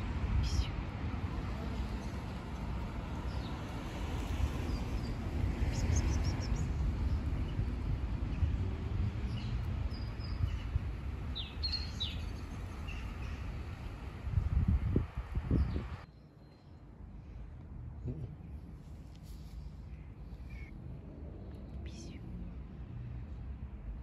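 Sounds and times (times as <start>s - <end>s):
small birds chirping: 9.2s - 13.6s.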